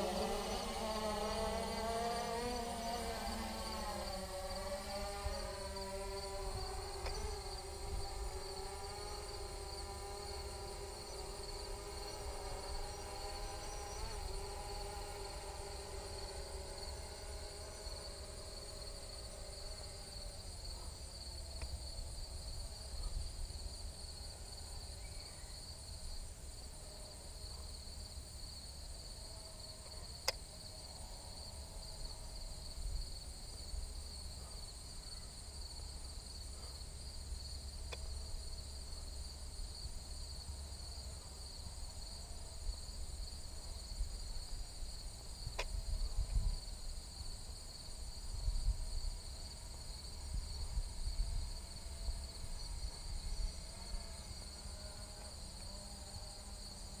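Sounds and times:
insects chirring: 0.0 - 57.0
wind rumble on microphone: 45.4 - 47.2, 48.0 - 49.4, 50.1 - 54.2.

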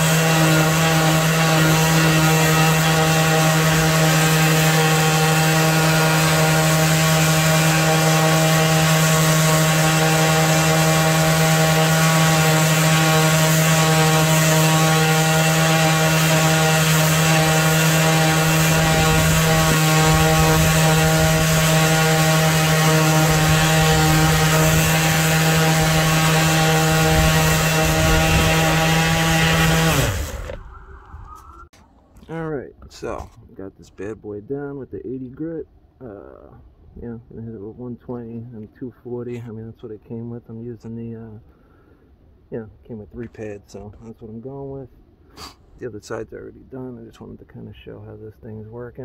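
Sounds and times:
palm sander on wood: 0.0 - 31.8.

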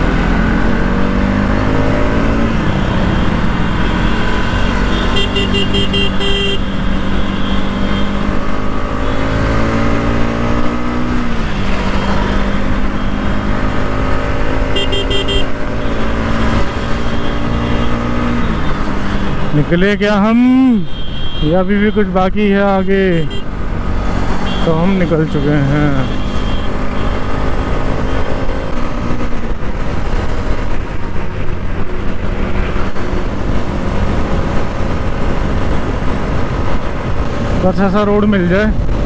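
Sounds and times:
motorcycle engine accelerating: 0.0 - 5.4, 6.6 - 19.6
horn beeping: 3.7 - 8.2, 14.7 - 16.0, 24.4 - 27.2.

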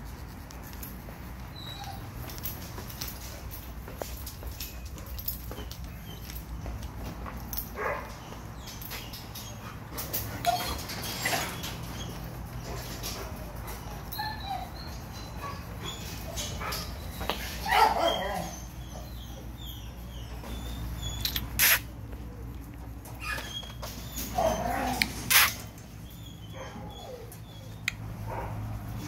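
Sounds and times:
dogs barking: 7.6 - 8.4, 11.3 - 21.8, 26.4 - 29.0.

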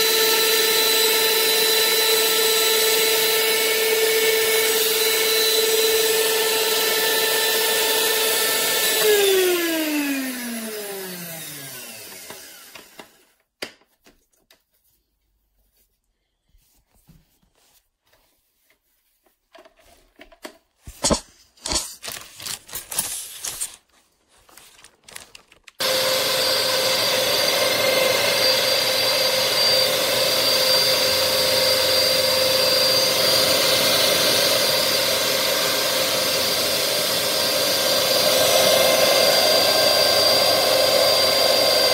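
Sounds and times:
mixer motor whining: 0.0 - 13.4, 25.8 - 41.9.

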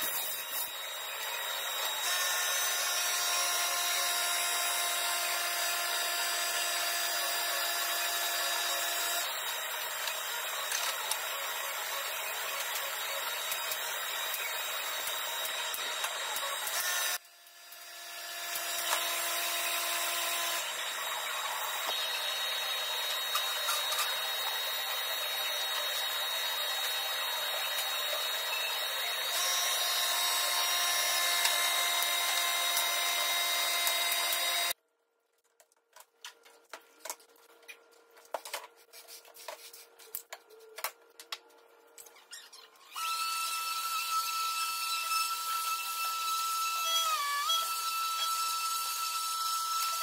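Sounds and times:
orbital sander on wood: 0.0 - 34.8
power tool whirring: 0.0 - 34.8, 42.7 - 50.0.

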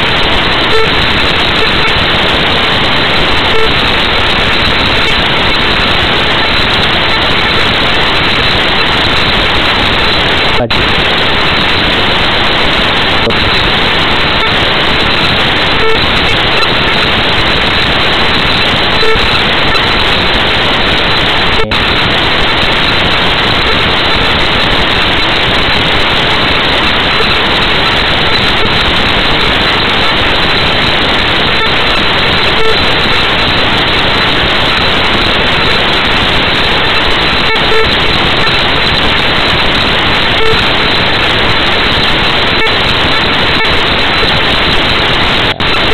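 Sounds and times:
static hiss: 0.0 - 45.9.

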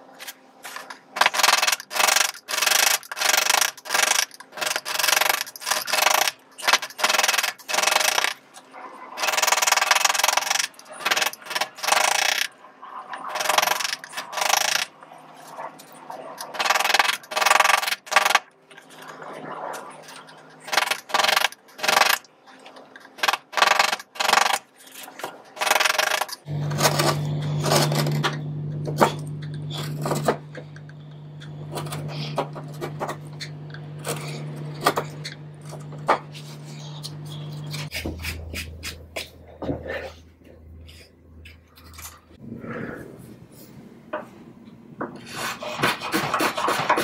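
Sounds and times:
steady low hum: 25.6 - 45.1.

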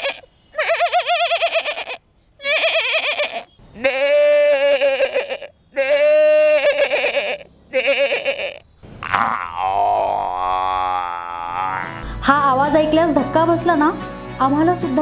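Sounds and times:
man imitating bird calls: 2.6 - 12.1.

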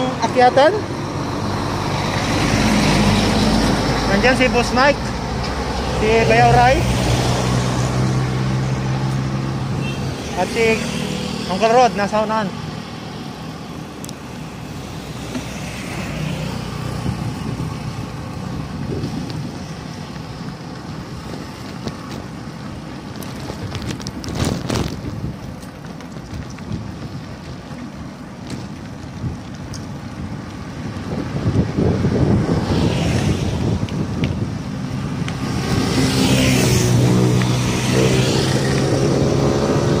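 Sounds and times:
vehicle engine and road noise: 0.0 - 40.0
wind buffeting microphone: 12.7 - 40.0.

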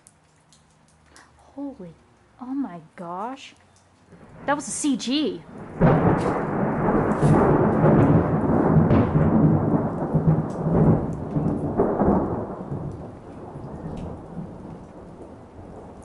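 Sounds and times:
rain falling: 0.0 - 16.0
thunder crack and rumble: 4.1 - 16.0.

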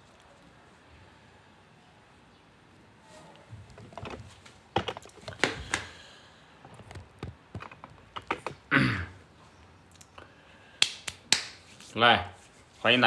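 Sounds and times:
phone handling clicks and knocks: 3.7 - 5.9, 6.7 - 8.7.

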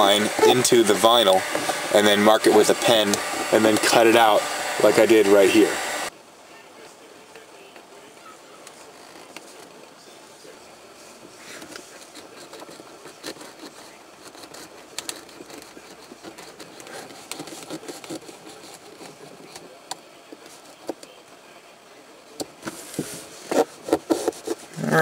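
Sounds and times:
craft knife scraping vinyl: 0.0 - 5.3, 11.5 - 19.7, 22.6 - 25.0.

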